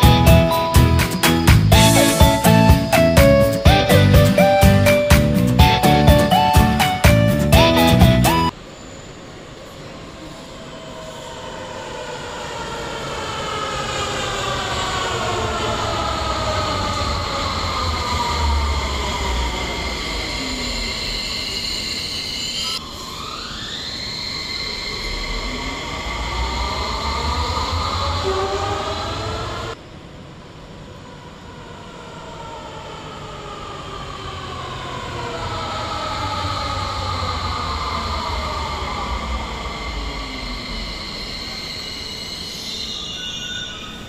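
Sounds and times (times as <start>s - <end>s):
metro train electric whine: 0.0s - 44.0s.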